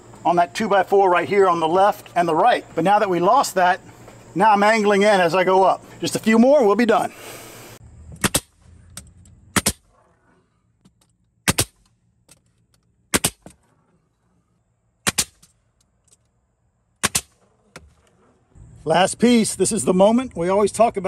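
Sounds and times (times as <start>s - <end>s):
nail gun firing: 8.2s - 8.6s, 9.6s - 9.9s, 11.4s - 11.9s, 13.1s - 13.5s, 15.0s - 15.5s, 17.0s - 17.4s.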